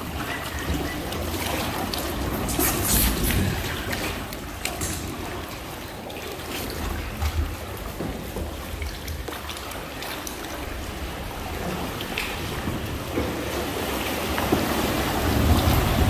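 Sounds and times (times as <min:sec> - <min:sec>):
water splashing and lapping: 0:00.0 - 0:16.0
wind rumbling on microphone: 0:14.9 - 0:16.0.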